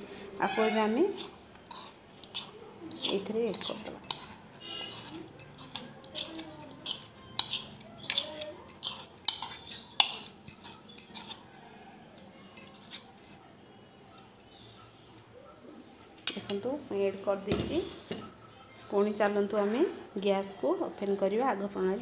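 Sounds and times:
spoon scraping plastic bowl: 0.0s - 11.6s.

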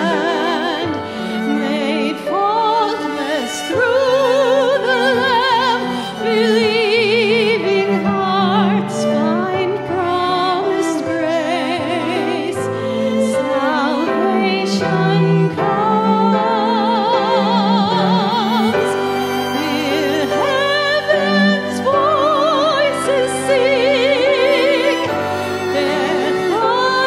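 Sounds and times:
bowed cello: 0.0s - 27.0s
piano: 0.0s - 27.0s
woman singing a hymn: 0.0s - 27.0s.

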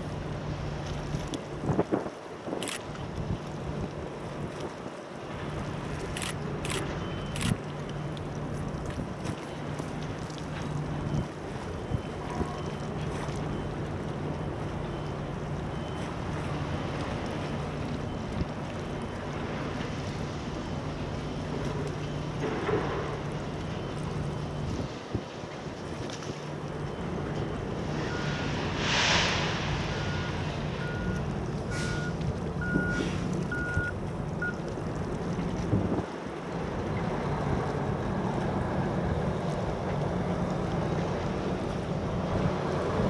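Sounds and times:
wind noise on microphone: 1.5s - 3.5s, 35.5s - 36.1s
ship engines humming: 5.1s - 43.0s
reversing alarm beeping: 6.2s - 8.1s, 11.0s - 17.0s, 26.8s - 34.6s
brief rush of noise: 28.1s - 31.0s.

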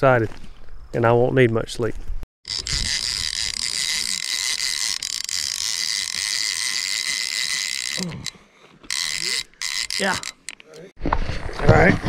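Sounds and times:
fishing reel clicker ratcheting: 2.5s - 10.7s.

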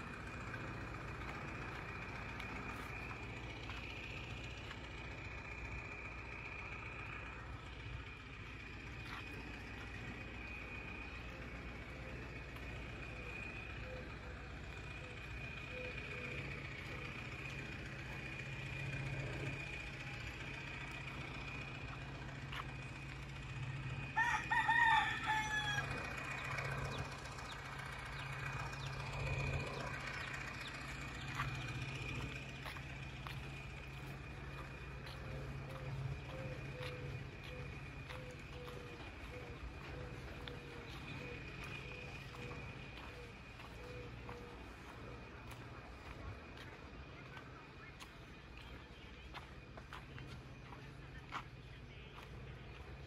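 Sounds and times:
steady low hum: 0.0s - 53.0s
rooster crowing: 24.1s - 27.0s.

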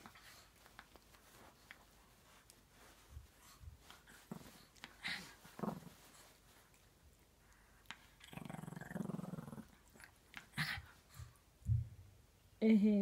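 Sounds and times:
dog growling: 4.3s - 6.1s, 8.2s - 10.8s.

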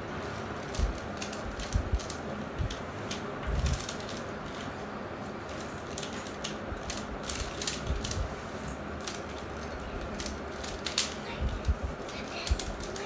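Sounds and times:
plastic puzzle twisting clicks: 9.0s - 11.8s.

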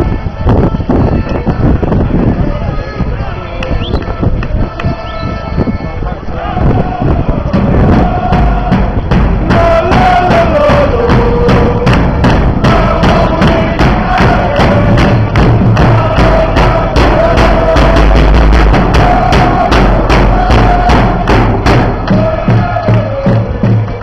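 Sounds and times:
crowd singing a chant: 0.0s - 24.0s
drums beating steady rhythm: 6.4s - 24.0s.

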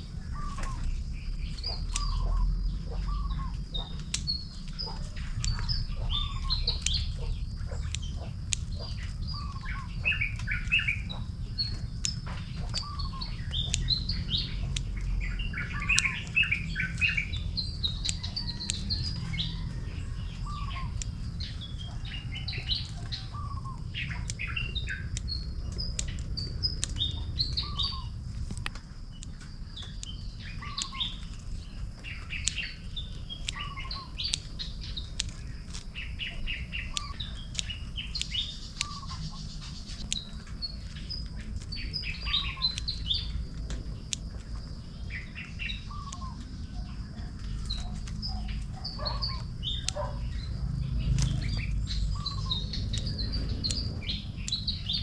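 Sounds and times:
birds chirping and calling: 0.0s - 55.0s
low rumble: 0.0s - 55.0s
sharp clicks: 0.0s - 55.0s.

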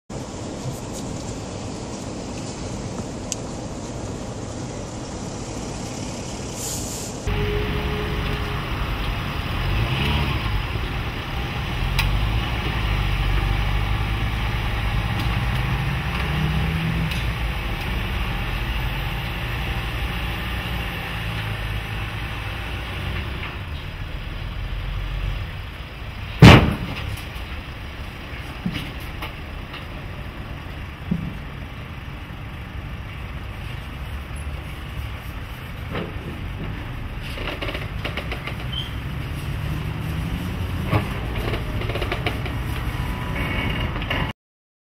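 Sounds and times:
car engine running low: 7.3s - 44.2s
loud clank of metal ramps: 26.4s - 27.3s.

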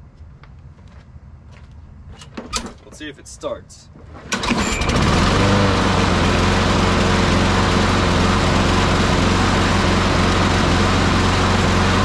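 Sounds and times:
lawn mower engine running: 4.1s - 12.0s.

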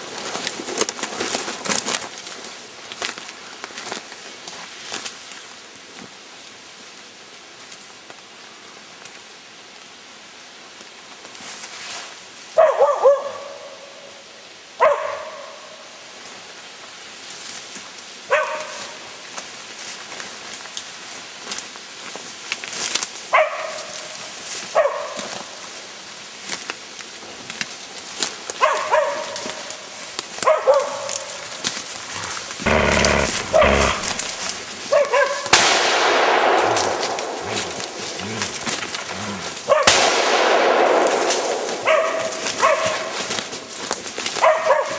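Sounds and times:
dog barking: 12.6s - 13.7s, 14.8s - 15.6s, 18.3s - 18.9s, 23.3s - 23.8s, 24.8s - 25.2s, 28.6s - 29.4s, 30.4s - 31.1s, 32.2s - 34.3s, 34.9s - 35.4s, 36.6s - 40.1s, 41.9s - 43.1s, 44.4s - 44.9s.

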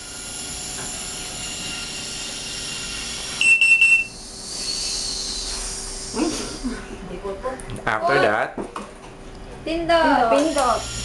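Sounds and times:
machine whine: 0.0s - 6.8s, 10.3s - 11.0s
electronic buzzer short beeps: 3.4s - 4.2s.

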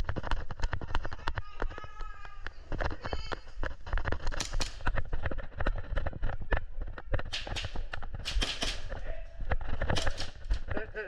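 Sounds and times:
running footsteps: 0.0s - 11.0s
gas pistol shots popping: 7.3s - 9.0s.

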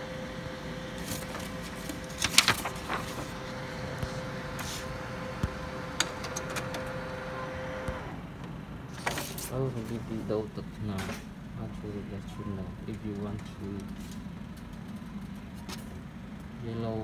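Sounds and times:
laser printer humming: 0.0s - 14.4s
paper rustling: 0.9s - 5.0s, 8.9s - 10.0s.

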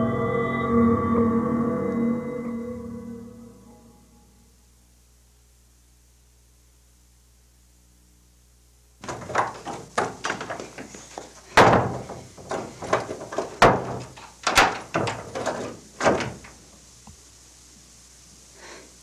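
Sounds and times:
banging on a door: 9.0s - 16.6s.

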